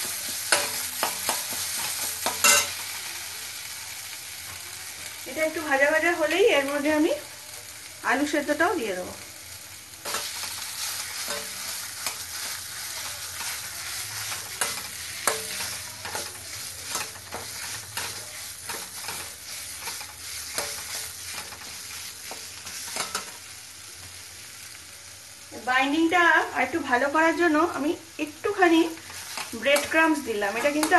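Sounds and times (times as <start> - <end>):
food sizzling in oil: 0.0 - 30.9
metal spatula scraping pan: 0.3 - 2.9, 10.0 - 23.4.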